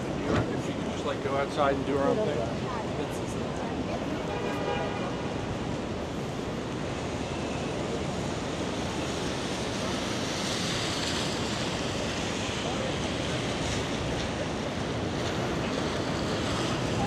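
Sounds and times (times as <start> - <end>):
traffic on a wet street: 0.0 - 17.0
rain hiss: 5.0 - 17.0.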